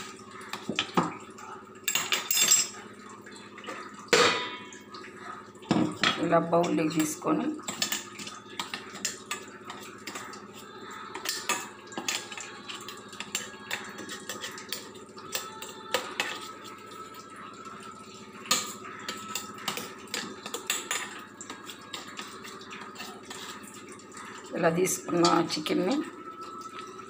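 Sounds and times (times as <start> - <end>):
spoon clinking against steel utensils: 1.8 - 2.8, 5.7 - 27.0.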